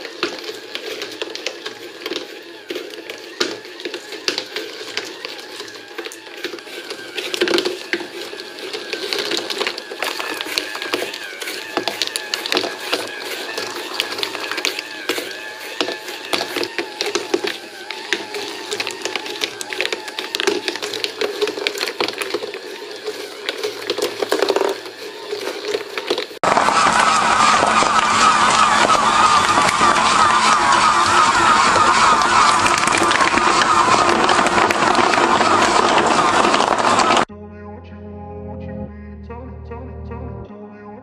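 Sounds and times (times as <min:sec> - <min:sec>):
marbles clicking and rattling: 0:00.0 - 0:26.4
small motor whining: 0:00.0 - 0:37.3.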